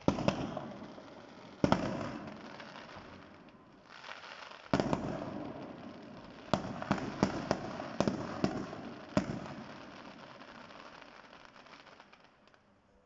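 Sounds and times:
rapid firecracker bangs: 0.0 - 3.2, 4.7 - 10.6
firework crackling: 0.0 - 12.7.

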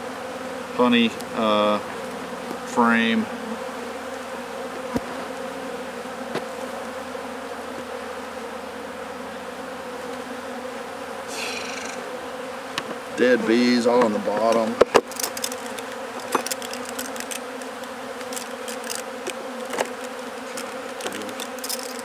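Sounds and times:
bees buzzing: 0.0 - 22.0.

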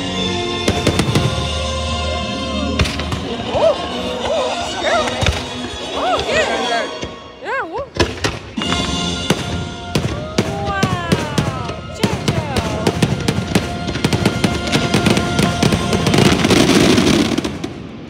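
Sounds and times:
music: 0.0 - 17.8
fireworks bursting: 0.6 - 1.7, 8.0 - 18.0.

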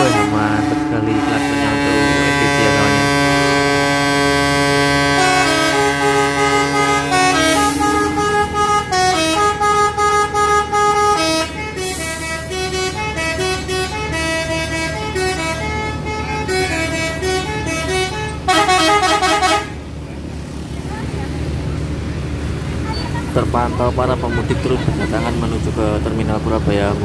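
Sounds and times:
musical bus air horns: 0.0 - 20.0
bus engines idling: 0.0 - 27.0.

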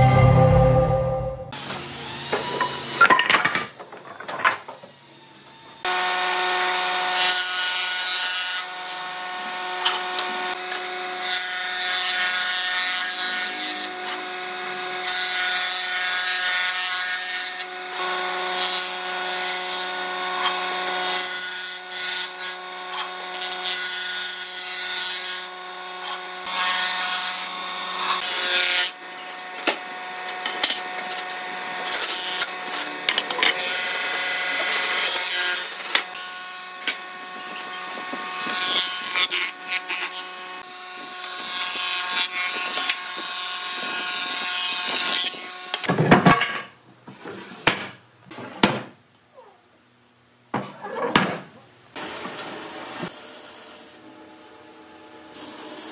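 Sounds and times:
jointer-planer shaving planks: 1.6 - 45.9
wooden knocks and clatter: 3.0 - 4.9.

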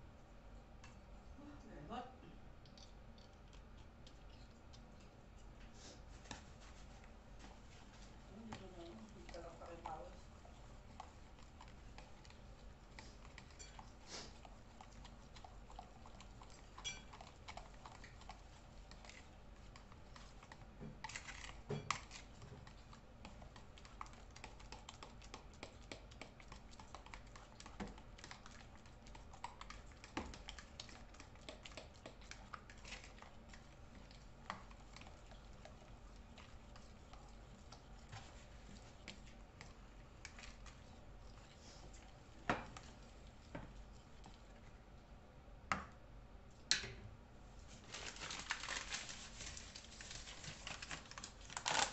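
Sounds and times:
fork scraping a mixing bowl: 7.9 - 42.0.

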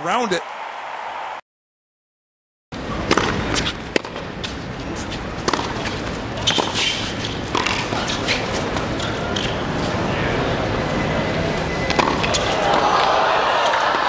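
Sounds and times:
racket striking ball: 3.0 - 4.6, 5.4 - 8.2, 11.9 - 12.8
tennis ball bouncing: 3.0 - 4.6, 5.4 - 9.6, 11.9 - 12.8.

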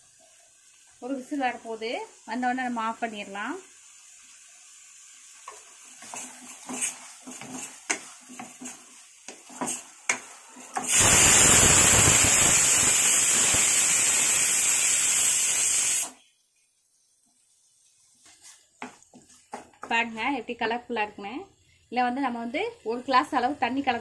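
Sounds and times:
spatula stirring gravy in metal pan: 5.2 - 10.9, 17.2 - 19.9
pressure cooker whistle hissing: 10.8 - 16.3.

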